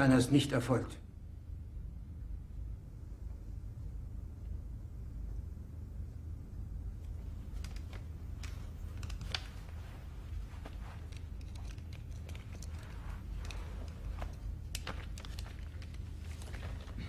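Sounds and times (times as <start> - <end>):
low room hum: 0.0 - 17.0
faint clicks and rustles: 6.8 - 17.0.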